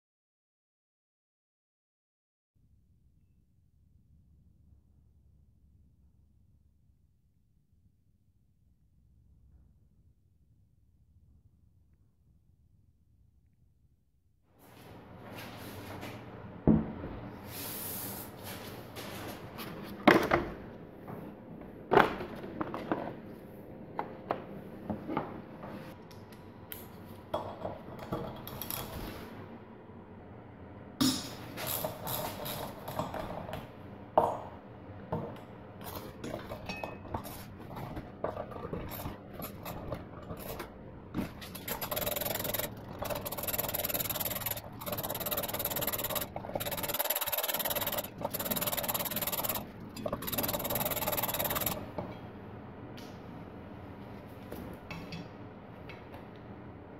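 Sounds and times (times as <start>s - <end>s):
hand tool clicking and scraping: 41.4s - 51.8s.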